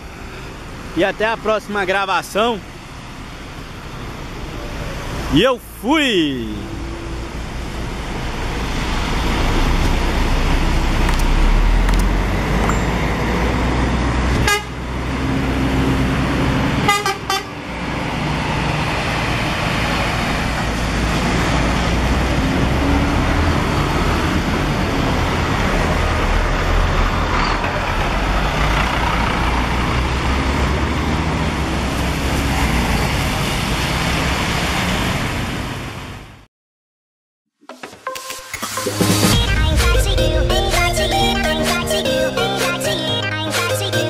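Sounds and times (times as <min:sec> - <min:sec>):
bus diesel engine running: 0:00.0 - 0:33.4
bus horn toots: 0:14.4 - 0:14.8, 0:16.8 - 0:17.6.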